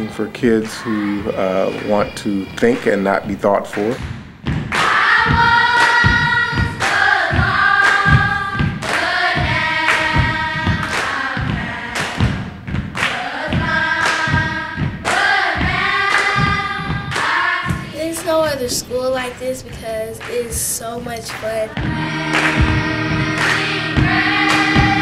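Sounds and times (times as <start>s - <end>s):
choir singing held notes: 0.0s - 3.4s, 4.8s - 12.4s, 13.0s - 17.9s, 21.7s - 25.0s
steady thumping beat: 0.0s - 25.0s.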